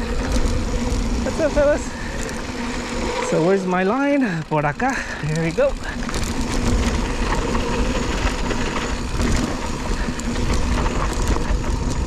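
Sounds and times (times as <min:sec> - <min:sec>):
bike rattling over ruts: 0:00.0 - 0:12.0
bike tyres rumbling on dirt: 0:00.0 - 0:12.0.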